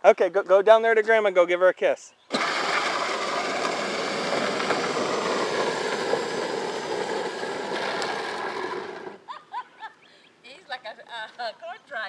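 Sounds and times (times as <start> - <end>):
electric motors and gearboxes running: 2.3 - 9.2
plastic wheels rolling on asphalt: 2.3 - 9.3.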